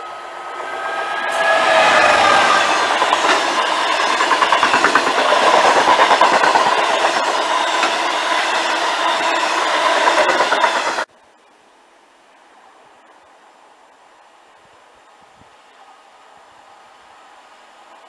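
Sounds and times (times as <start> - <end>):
diesel locomotive passing: 0.0 - 11.1
wagons clattering over rails: 1.2 - 11.1.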